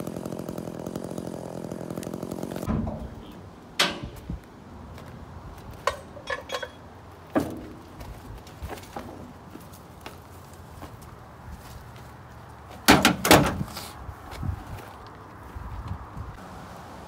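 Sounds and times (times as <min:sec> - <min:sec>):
chainsaw engine running: 0:00.0 - 0:02.7
metal gear clanking: 0:05.8 - 0:06.8.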